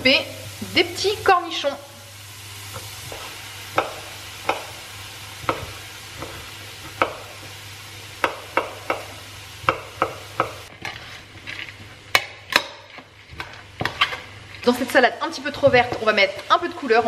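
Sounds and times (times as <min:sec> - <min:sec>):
bacon sizzling in a pan: 0:00.0 - 0:17.0.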